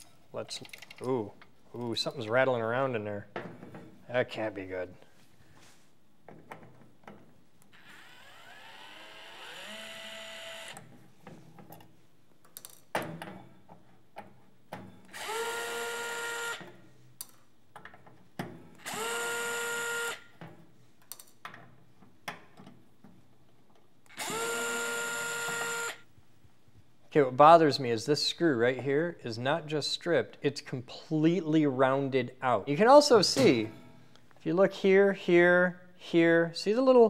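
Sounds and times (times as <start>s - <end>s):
electric screwdriver whine: 7.8s - 10.8s, 15.1s - 16.6s, 18.8s - 20.2s, 24.1s - 26.0s.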